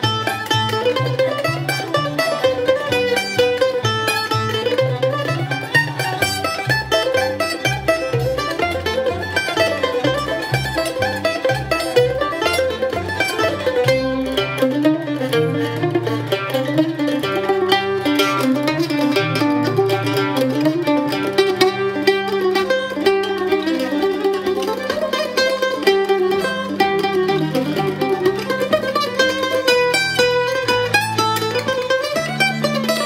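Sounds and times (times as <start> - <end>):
low bass part: 0.0 - 24.8
mandolin picking melody: 0.0 - 33.0.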